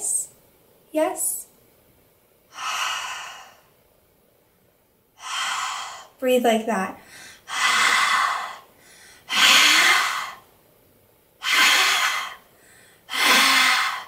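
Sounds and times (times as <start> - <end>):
woman breathing hard: 2.5 - 3.8, 5.2 - 6.2, 7.0 - 10.5, 11.4 - 14.0.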